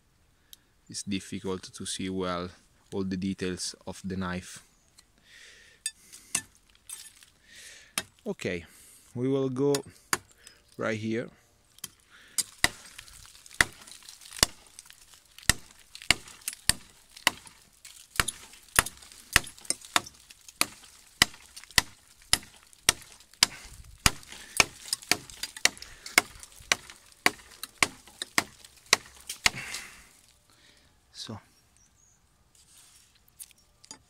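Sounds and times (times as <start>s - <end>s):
knife chopping dry wood: 7.9s - 8.3s, 9.7s - 10.4s, 11.8s - 30.0s.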